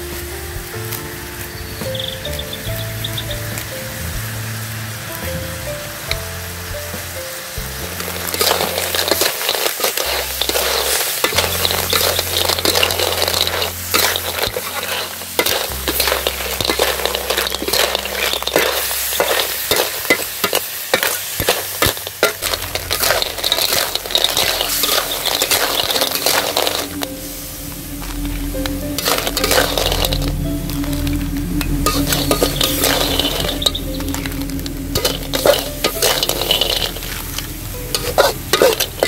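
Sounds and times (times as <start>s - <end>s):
food sizzling in a wok: 0.0s - 39.0s
metal spatula scraping wok: 7.8s - 39.0s.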